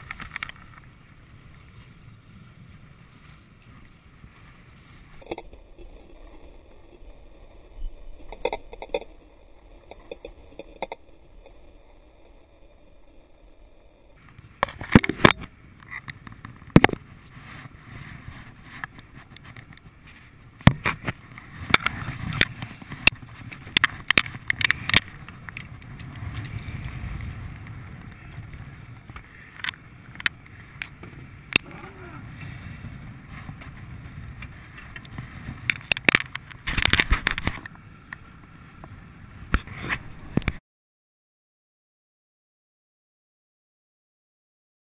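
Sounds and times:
water noise: 0:00.0 - 0:40.6
wind: 0:00.0 - 0:40.6.

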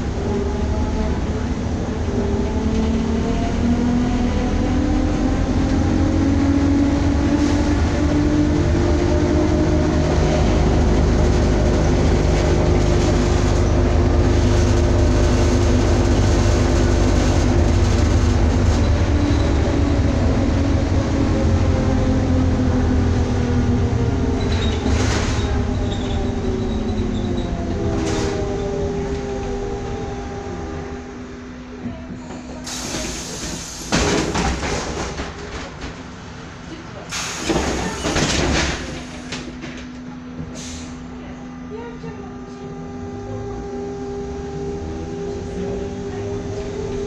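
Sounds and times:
road and body rumble: 0:00.0 - 0:47.0.

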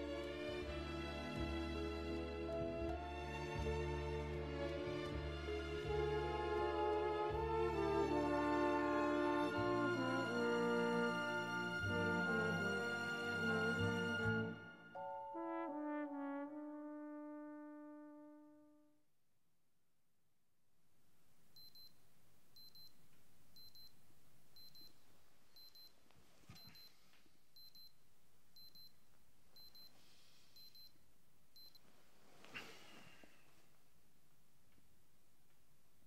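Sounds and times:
held brass chord: 0:06.5 - 0:18.9
phone alarm double beeps: 0:22.6 - 0:23.0, 0:23.6 - 0:24.0, 0:27.6 - 0:27.9, 0:29.6 - 0:29.9, 0:31.6 - 0:31.8.

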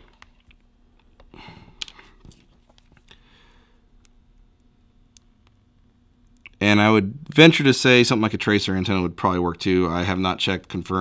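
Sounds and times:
soft breath: 0:01.3 - 0:02.2, 0:03.0 - 0:03.9.

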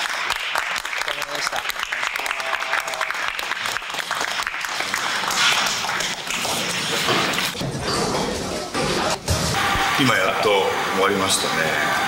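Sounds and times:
people clapping: 0:00.0 - 0:07.6.

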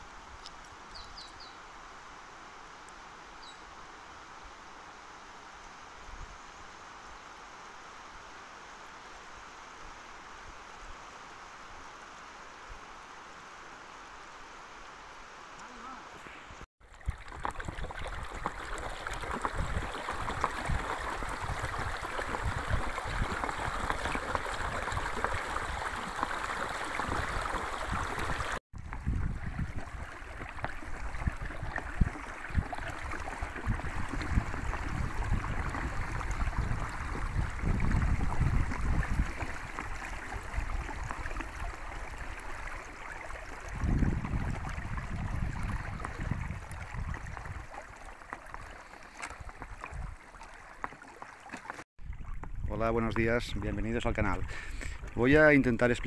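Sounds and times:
water rushing along kayak hull: 0:16.8 - 0:56.0.

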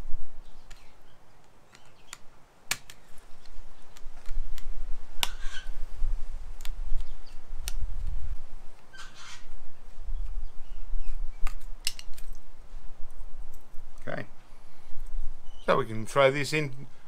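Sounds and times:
circuit board snapping: 0:01.7 - 0:05.4.

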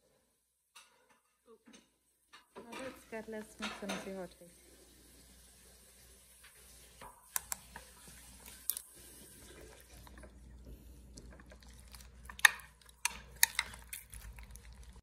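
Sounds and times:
spoon stirring wet mixture: 0:06.4 - 0:15.0.

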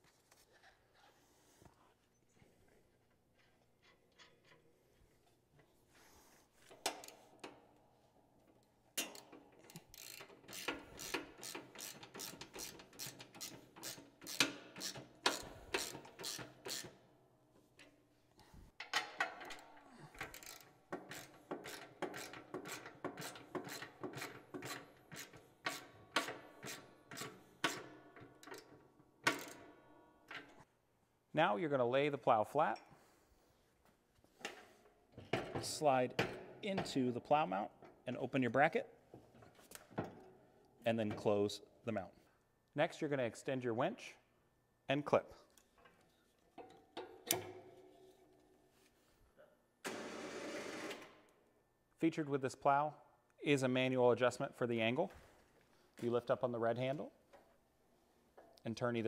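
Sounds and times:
ratchet wrench clicking: 0:09.0 - 0:17.0, 0:20.2 - 0:27.8.

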